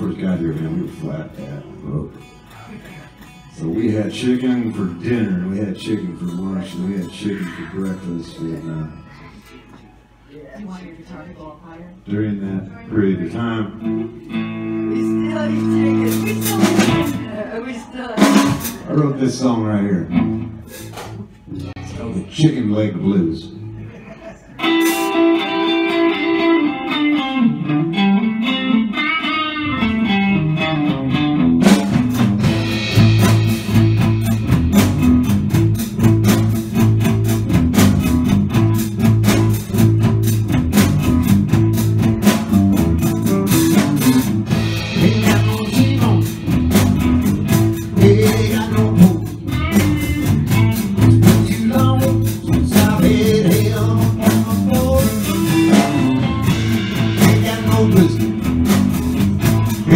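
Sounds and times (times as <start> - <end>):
electric blues band playing: 0.0 - 10.1, 12.0 - 59.9
electric guitar: 13.3 - 18.9, 19.9 - 22.3, 23.5 - 59.9.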